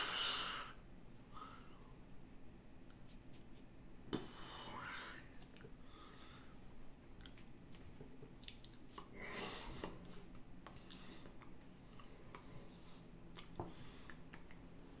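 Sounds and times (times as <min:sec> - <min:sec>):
breaths: 0:04.2 - 0:06.6
lip and tongue clicks: 0:08.4 - 0:09.1.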